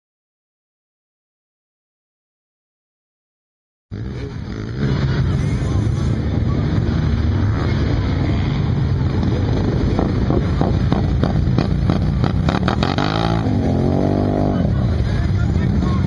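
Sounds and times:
atv engine revving: 3.9 - 16.0.

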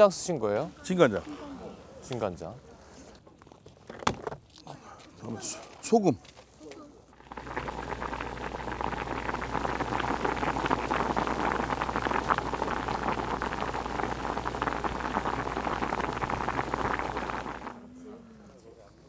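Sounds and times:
broth bubbling and popping: 7.2 - 17.8.

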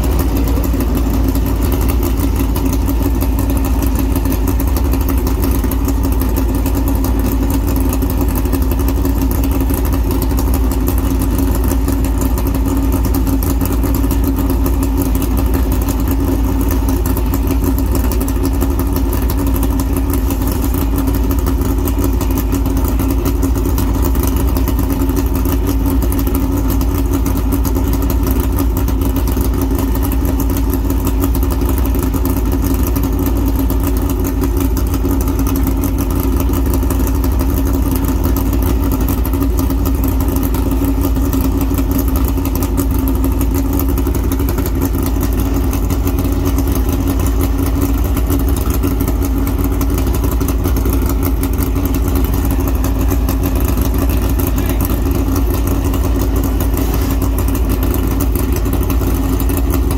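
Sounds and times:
race car engine idling: 0.0 - 59.9.

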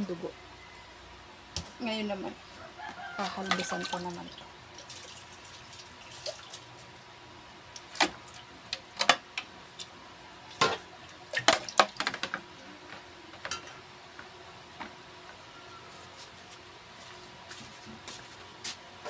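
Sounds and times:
wet splashing: 3.6 - 6.8.

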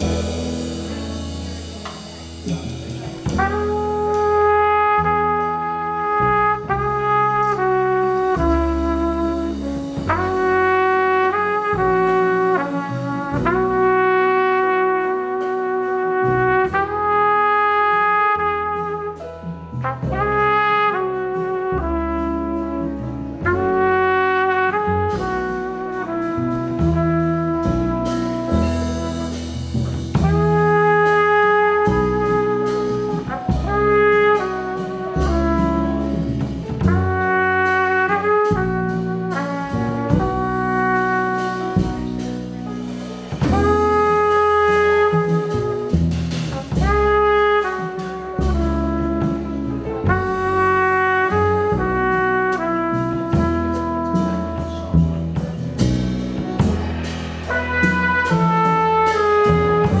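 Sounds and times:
drums with cymbals: 0.0 - 5.1, 6.6 - 16.9, 24.7 - 60.0
piano: 0.0 - 60.0
plucked upright bass: 0.0 - 60.0
trumpet melody: 0.0 - 60.0.

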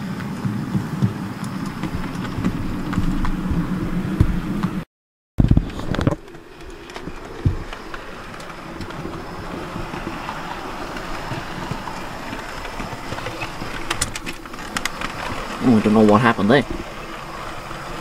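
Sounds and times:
clicks over rail joints: 5.5 - 18.0.

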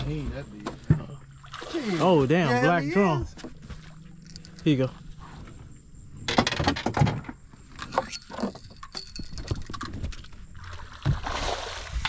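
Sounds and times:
fishing gear clattering on boat deck: 3.2 - 5.0, 6.2 - 10.7.

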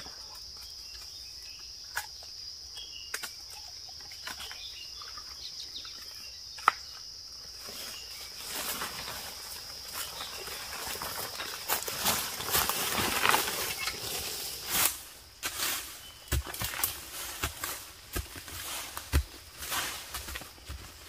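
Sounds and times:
insects droning: 0.0 - 21.0
footsteps in dry leaf litter: 7.6 - 21.0.

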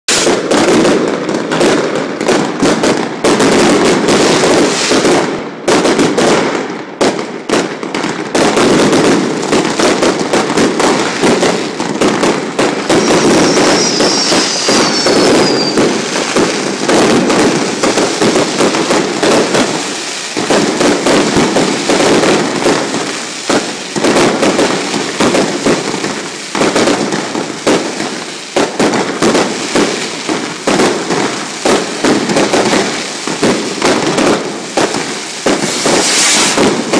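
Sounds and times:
fireworks bangs and crackles: 0.1 - 36.9
falling firework whistle: 12.2 - 27.0, 35.4 - 36.9.

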